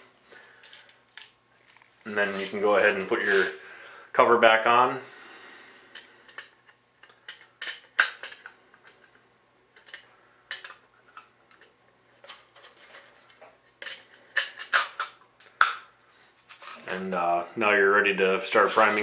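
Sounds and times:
plastic and metal clicks and clatter: 0:06.0 - 0:09.1, 0:09.8 - 0:15.8.

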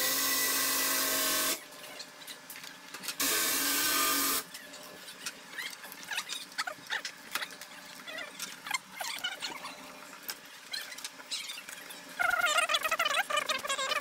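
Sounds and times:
small power tool whining: 0:00.0 - 0:01.6, 0:03.2 - 0:04.5.

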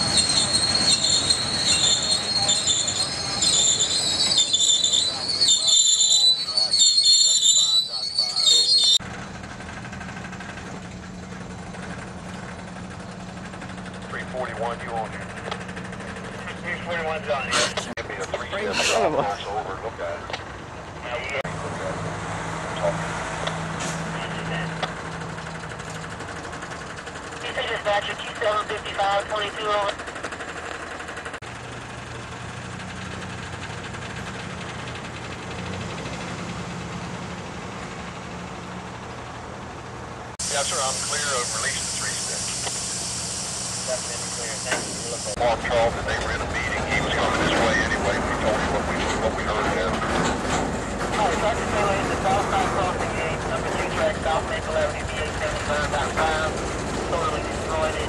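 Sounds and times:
train wheels squealing on rails: 0:00.0 - 0:09.0
train wheels rattling on rails: 0:00.0 - 0:16.4, 0:44.4 - 0:58.0
low engine hum: 0:08.6 - 0:58.0.

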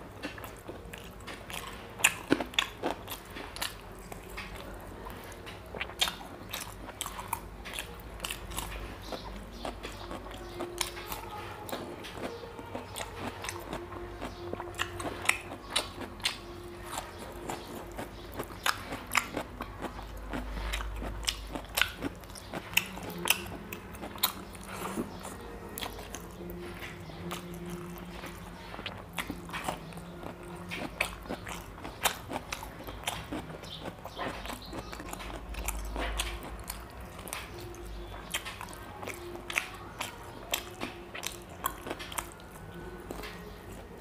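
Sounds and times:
wet chewing and lip-smacking: 0:00.0 - 0:44.0.

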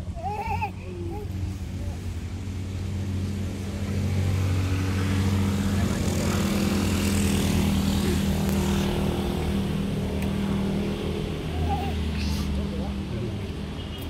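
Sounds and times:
road noise: 0:00.0 - 0:14.0
vehicle engine droning: 0:00.0 - 0:14.0.

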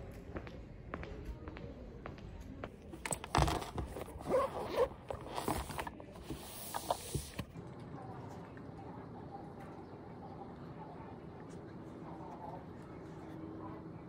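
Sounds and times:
fabric bag rustling: 0:03.0 - 0:07.4
zipper: 0:03.4 - 0:07.4.

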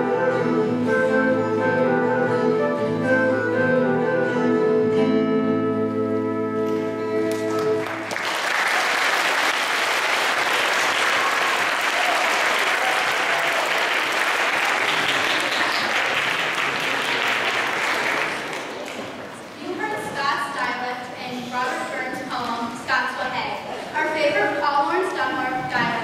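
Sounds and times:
audience applause: 0:07.3 - 0:19.2.

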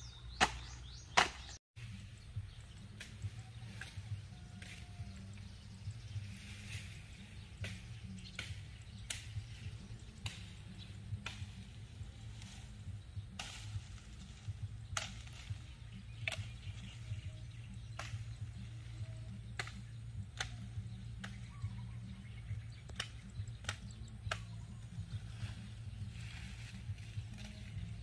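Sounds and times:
branches snapping and knocking: 0:13.3 - 0:17.0.

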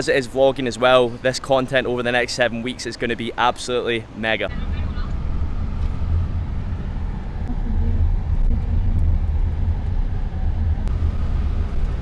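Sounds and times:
car engine and road rumble: 0:04.0 - 0:12.0.

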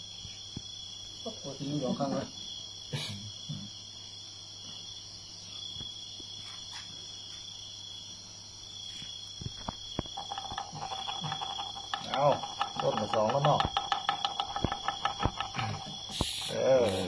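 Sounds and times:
insects trilling: 0:00.0 - 0:17.0.

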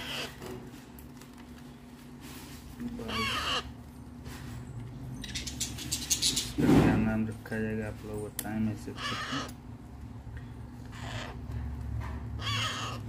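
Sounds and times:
parrot chick begging calls: 0:00.0 - 0:00.4, 0:03.0 - 0:03.8, 0:08.9 - 0:09.6, 0:10.8 - 0:11.4, 0:12.4 - 0:13.0.

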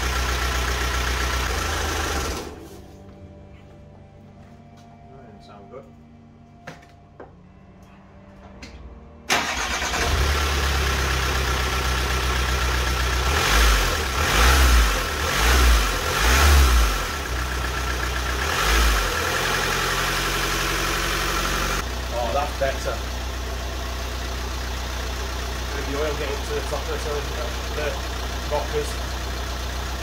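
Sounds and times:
diesel engine starting and idling: 0:00.0 - 0:02.9, 0:09.2 - 0:30.0
engine revving: 0:09.3 - 0:21.8.

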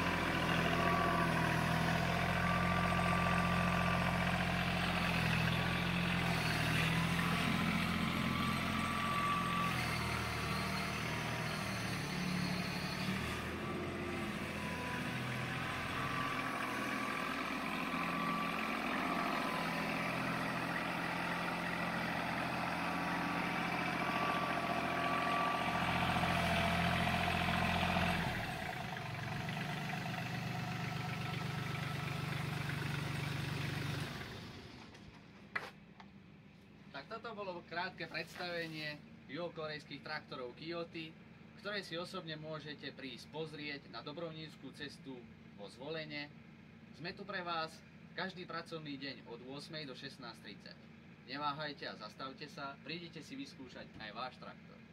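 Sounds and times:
tractor diesel engine running: 0:00.0 - 0:35.5.

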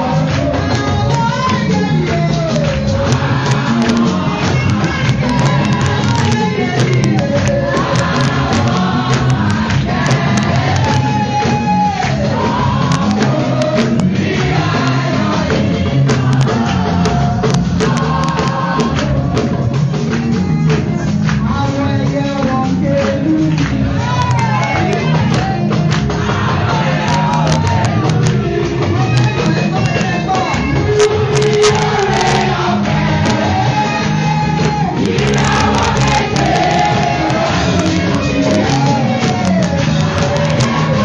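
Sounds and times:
amplified band accompaniment: 0:00.0 - 0:41.0
woman singing into microphone: 0:03.1 - 0:11.8.

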